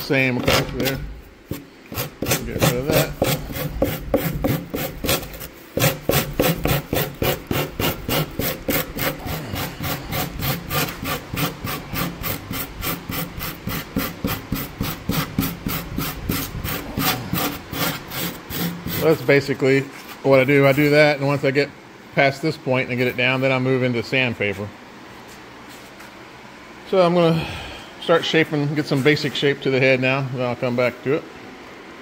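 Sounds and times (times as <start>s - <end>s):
rasp scraping foam: 0.0s - 19.4s.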